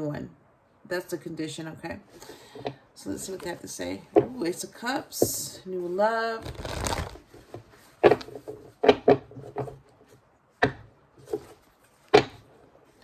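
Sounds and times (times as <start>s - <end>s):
cards being shuffled: 6.4s - 9.8s.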